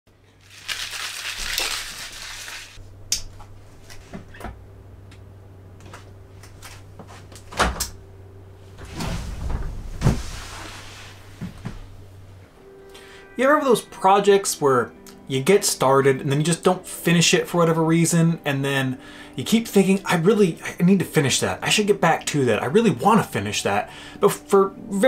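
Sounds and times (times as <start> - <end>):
steady low hum: 2.8 - 13.7
person dropping into chair: 8.8 - 11.9.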